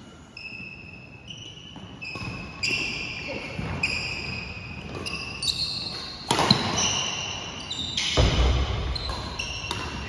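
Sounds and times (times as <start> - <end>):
shoes squeaking on wooden floor: 0.4 - 8.2
racket hitting shuttlecock: 3.6 - 10.0.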